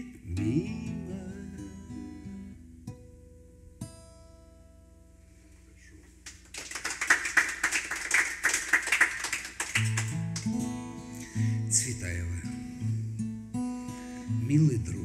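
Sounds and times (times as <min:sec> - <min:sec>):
audience clapping: 0:06.2 - 0:10.9.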